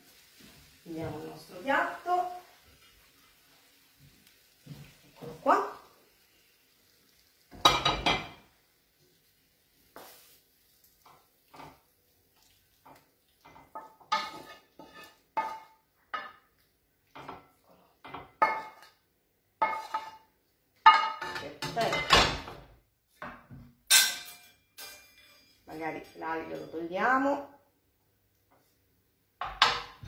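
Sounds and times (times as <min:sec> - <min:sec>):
plate and pan clattering: 0:07.5 - 0:08.4, 0:13.5 - 0:16.4, 0:19.6 - 0:20.2, 0:23.9 - 0:26.7, 0:29.4 - 0:30.0
utensil clinking on pan and plate: 0:07.5 - 0:08.5, 0:12.8 - 0:16.5, 0:17.1 - 0:19.0, 0:19.6 - 0:22.6, 0:23.9 - 0:27.2.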